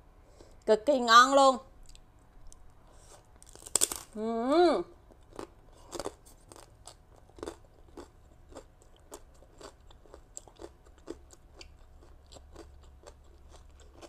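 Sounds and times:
person chewing crunchy salad: 0:01.8 - 0:04.1, 0:05.0 - 0:14.0.

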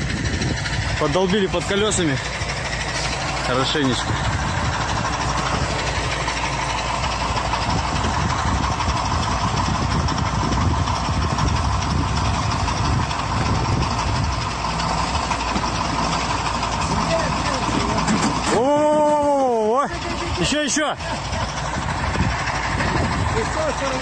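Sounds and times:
diesel truck engine rumbling: 0:00.0 - 0:24.0.

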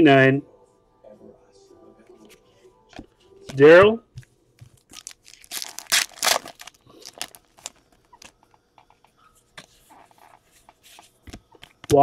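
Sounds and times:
cards crinkling and tapping: 0:04.2 - 0:09.7, 0:10.3 - 0:12.0
foil wrapper ripping: 0:04.8 - 0:08.3.

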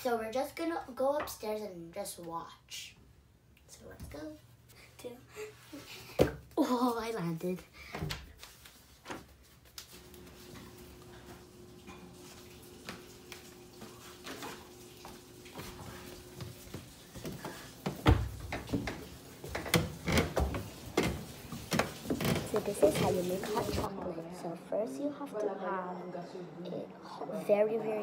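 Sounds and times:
footsteps on wooden stairs: 0:15.6 - 0:23.9.

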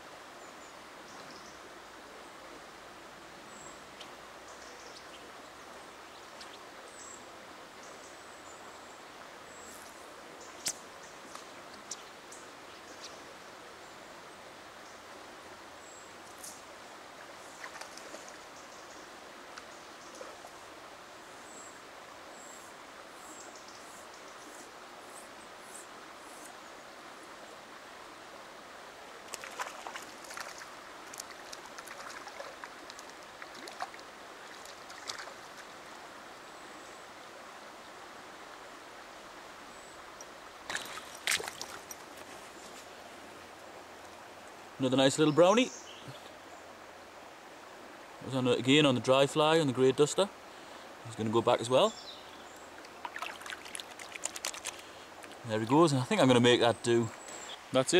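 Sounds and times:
flowing river water: 0:00.0 - 0:57.9
fish splashing: 0:29.3 - 0:35.6, 0:40.7 - 0:42.0, 0:52.8 - 0:55.4.

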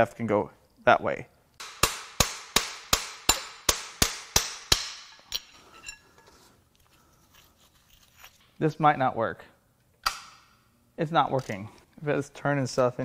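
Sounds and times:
metal tool striking metal: 0:01.6 - 0:06.0.

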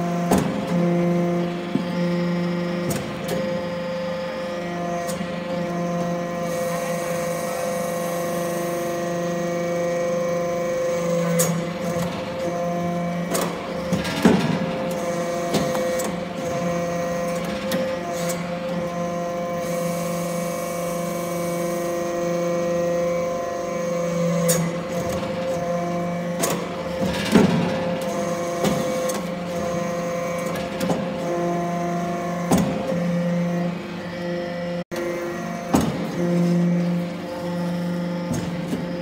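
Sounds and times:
hydraulic power unit hum: 0:00.0 - 0:39.0.

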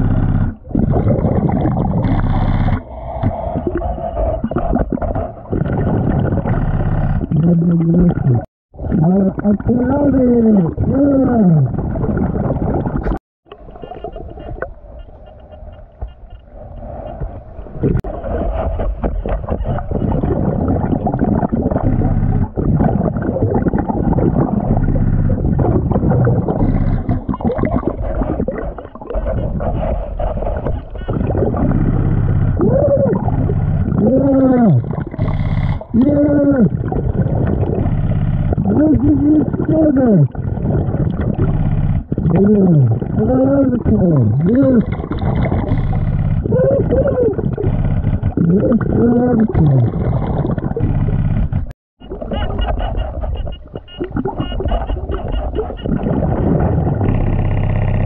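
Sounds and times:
underwater exhaled bubbles gurgling: 0:00.0 - 0:14.8, 0:16.6 - 0:58.0
moaning regulator tone: 0:19.6 - 0:58.0.

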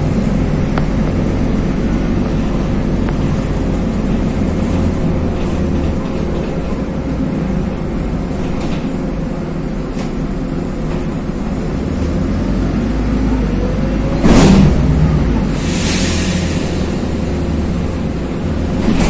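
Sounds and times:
bus engine drone: 0:00.0 - 0:19.0
road noise: 0:00.0 - 0:19.0
loud thump: 0:14.2 - 0:15.0.

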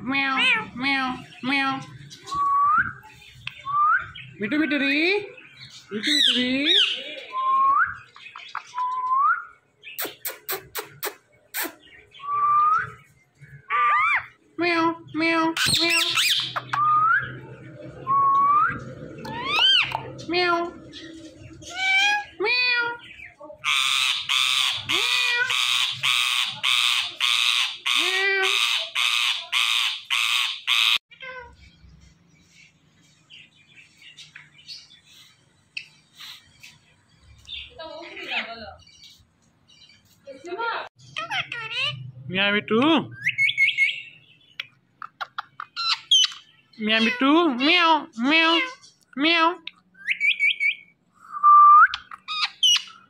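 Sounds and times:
parakeet squawking: 0:00.1 - 0:01.8, 0:06.0 - 0:07.1, 0:13.6 - 0:14.4, 0:15.3 - 0:17.2, 0:19.2 - 0:31.6, 0:41.1 - 0:42.1, 0:45.0 - 0:48.8, 0:52.1 - 0:53.0.

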